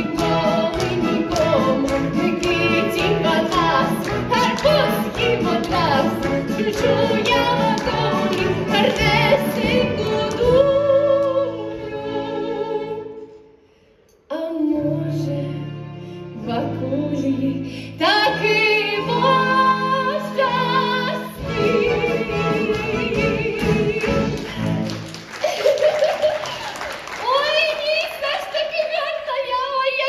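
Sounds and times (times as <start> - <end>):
woman singing: 0.0 - 13.1, 14.3 - 15.8, 16.4 - 24.7, 27.2 - 30.0.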